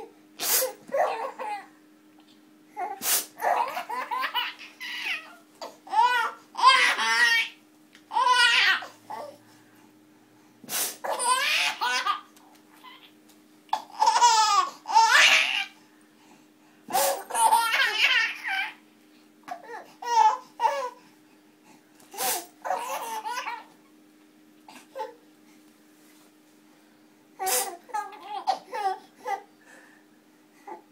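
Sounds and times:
infant laughing: 0.7s - 1.7s, 2.8s - 9.4s, 11.0s - 13.1s, 13.8s - 15.8s, 16.9s - 18.8s, 22.6s - 23.8s, 27.4s - 29.5s.

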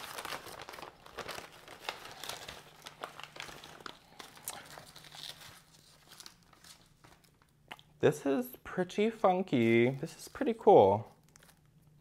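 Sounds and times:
paper crinkling and rustling: 0.0s - 7.6s, 10.0s - 12.0s.

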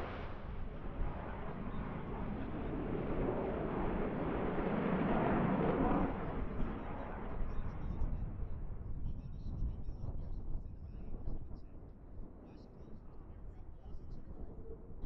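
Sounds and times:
jet engines roaring: 0.0s - 7.5s.

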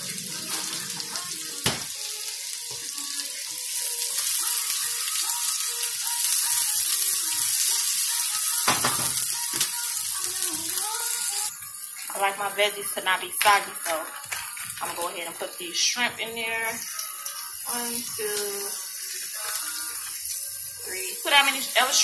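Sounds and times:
vegetables sizzling in oil: 0.0s - 22.0s.

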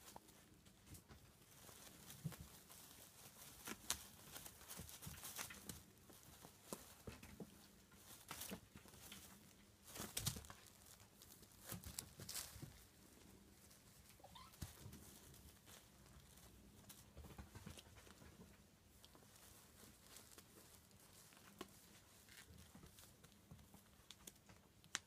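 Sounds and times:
fabric rustling: 0.0s - 24.4s
kittens' paws scuffling: 0.0s - 25.0s
faint rising squeak: 14.2s - 14.6s.

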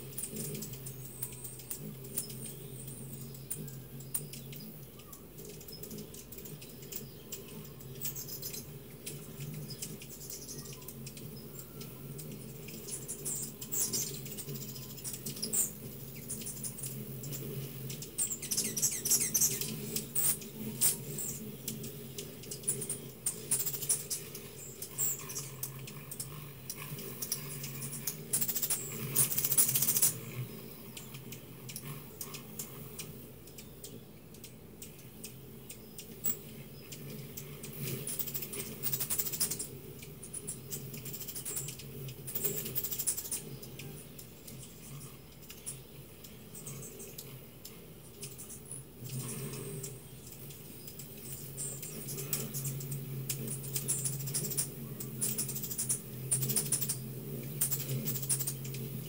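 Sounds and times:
high squeaky chatter: 0.0s - 30.3s
hummingbird chip notes: 0.0s - 59.0s
steady low hum: 0.0s - 59.0s.

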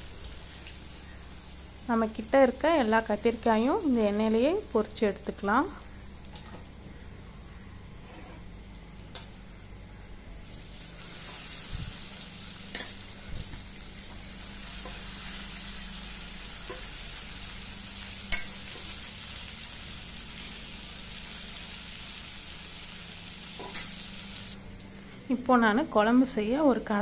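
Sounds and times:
vegetables sizzling in hot oil: 10.4s - 24.6s.

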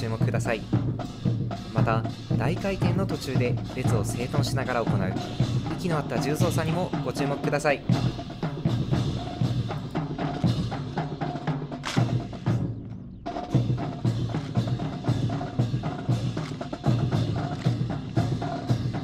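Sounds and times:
percussion-heavy music: 0.0s - 19.0s
wooden clacks of rifles: 16.4s - 16.7s, 17.4s - 18.2s.

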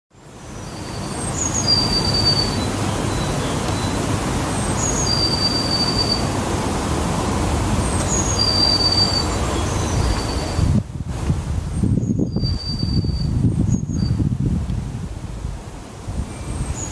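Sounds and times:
bird singing: 0.5s - 6.3s, 7.9s - 10.7s.

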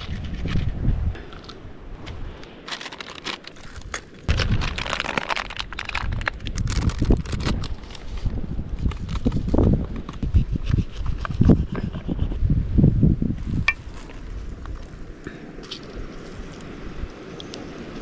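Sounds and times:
gravel crunching underfoot: 0.1s - 10.0s, 13.4s - 16.7s
plastic packet crinkling: 2.6s - 8.1s.

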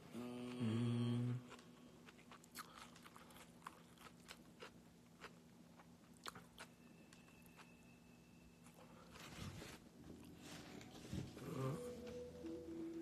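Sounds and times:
man humming low note: 0.0s - 1.5s, 11.3s - 13.0s
crunching of greens being chewed: 1.4s - 7.8s.

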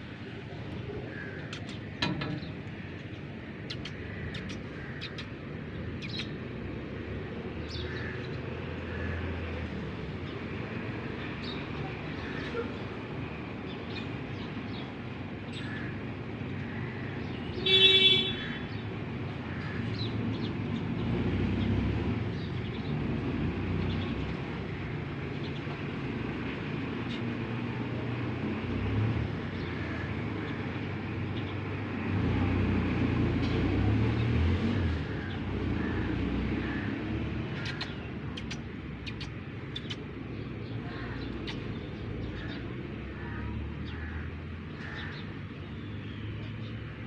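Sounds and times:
road traffic rumble: 0.0s - 47.0s
vehicles passing: 0.0s - 47.0s
car horn toot: 17.6s - 18.4s.

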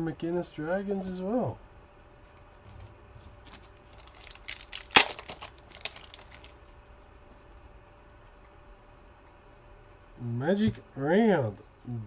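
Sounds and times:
cards being handled: 2.8s - 6.6s
card pack wrapper crinkling and tearing: 3.5s - 6.6s.

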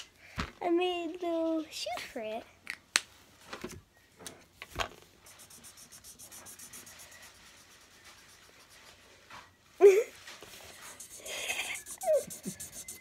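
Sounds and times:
marker scratching on paper: 5.3s - 9.0s, 10.6s - 13.0s
markers clicking and tapping: 10.8s - 13.0s.

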